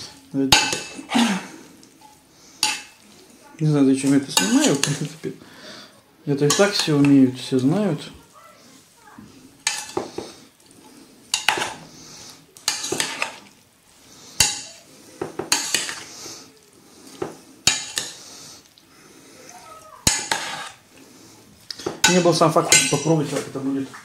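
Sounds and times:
spoon scraping pot: 0.0s - 3.3s, 6.4s - 7.2s, 8.7s - 18.8s, 19.5s - 23.6s
metal spoon clinking against pot: 9.6s - 10.0s, 11.3s - 11.8s, 12.6s - 13.4s, 14.4s - 14.8s, 15.5s - 16.0s, 17.6s - 18.2s, 20.0s - 20.8s, 21.7s - 23.3s.

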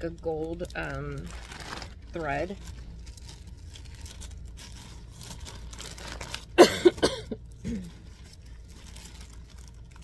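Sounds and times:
person coughing: 6.6s - 8.0s.

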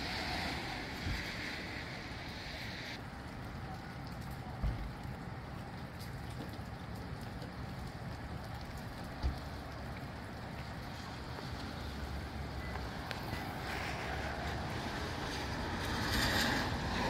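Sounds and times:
steady rain falling: 0.0s - 17.0s
wind: 0.0s - 17.0s.

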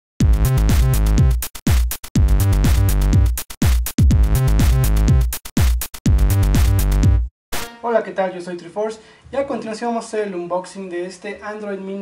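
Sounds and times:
deep bass notes dropping in pitch: 0.2s - 1.4s, 4.1s - 5.3s, 6.1s - 7.3s
electronic music with drum-machine beat: 0.2s - 7.8s.

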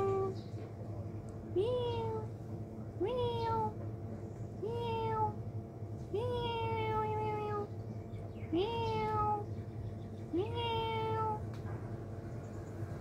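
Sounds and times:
cat meowing: 1.6s - 2.3s, 3.0s - 3.8s, 4.6s - 5.4s, 6.2s - 7.7s, 8.6s - 9.4s, 10.4s - 11.4s.

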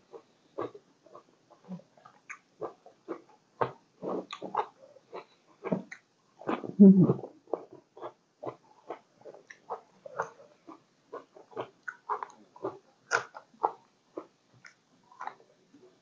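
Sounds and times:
person chewing and biting: 7.5s - 15.4s.

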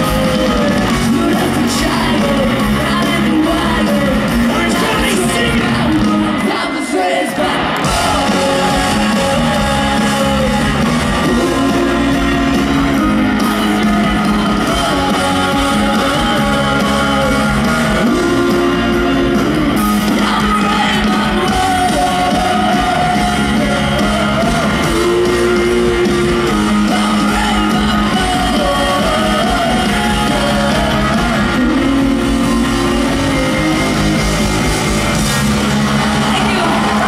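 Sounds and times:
woman singing: 0.0s - 19.2s
rock band playing: 0.0s - 37.0s.

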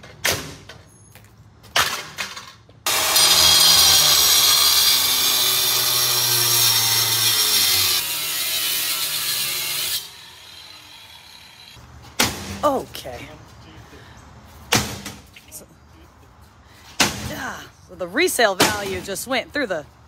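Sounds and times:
angle grinder cutting steel: 2.9s - 11.8s.

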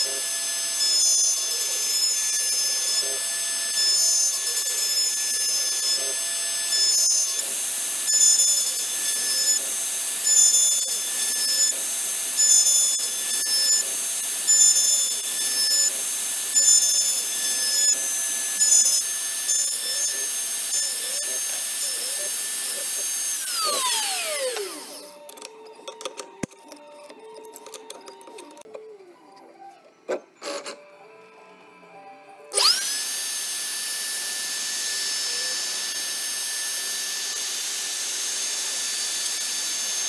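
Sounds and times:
end mill cutting wood: 0.0s - 28.7s, 32.5s - 40.0s
router spindle whining: 0.0s - 29.4s, 32.5s - 40.0s.

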